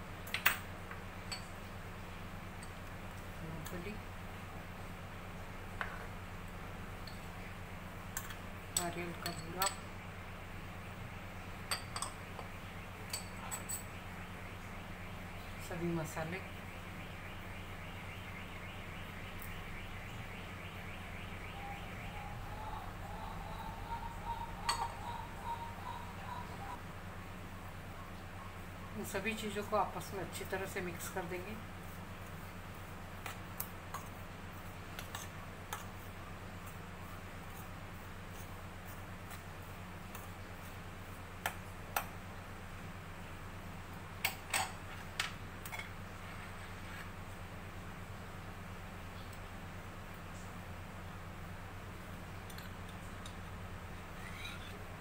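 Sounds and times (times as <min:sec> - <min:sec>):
low hum: 0:00.8 - 0:29.2
small bird chirping: 0:18.0 - 0:26.8, 0:54.2 - 0:54.8
spoon tapping against a bowl: 0:24.6 - 0:25.0.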